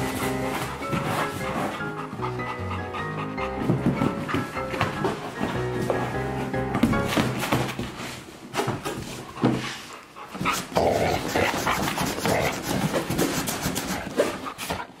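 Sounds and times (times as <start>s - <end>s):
cardboard scraping and rustling: 0.0s - 1.8s
dog panting: 0.0s - 6.0s, 7.8s - 15.0s.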